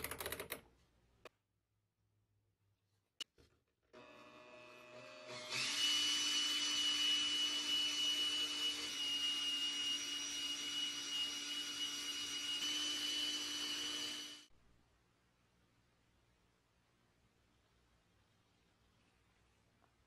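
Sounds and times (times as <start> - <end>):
small power tool whining: 4.0 - 14.5.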